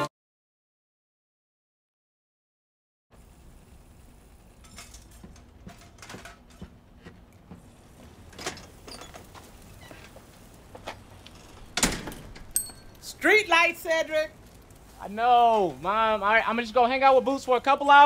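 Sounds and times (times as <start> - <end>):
storm door swinging shut: 11.6 - 12.6.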